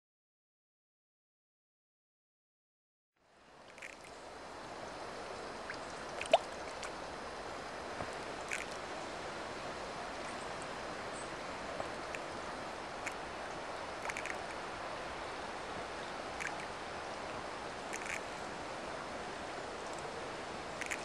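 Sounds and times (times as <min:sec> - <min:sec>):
steady outdoor hiss: 0:03.2 - 0:21.0
fish splashing at water surface: 0:05.7 - 0:06.9, 0:08.5 - 0:08.8, 0:14.0 - 0:14.5, 0:16.4 - 0:16.7, 0:17.9 - 0:18.2, 0:20.8 - 0:21.0.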